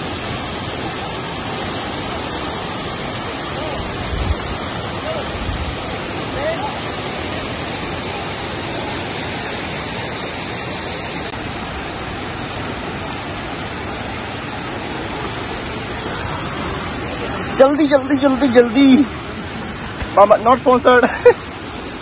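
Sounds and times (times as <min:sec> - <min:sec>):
waterfall rushing: 0:00.0 - 0:22.0.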